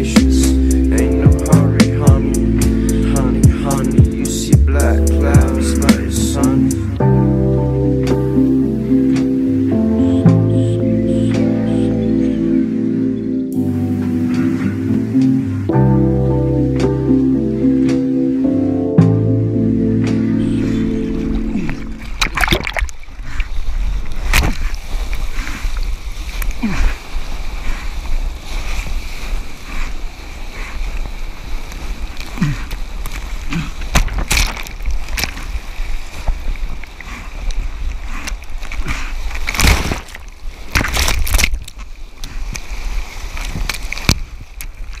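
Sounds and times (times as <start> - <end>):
seawater splashing and sloshing: 20.1 - 45.0
breaking whitewater splashes: 24.0 - 45.0.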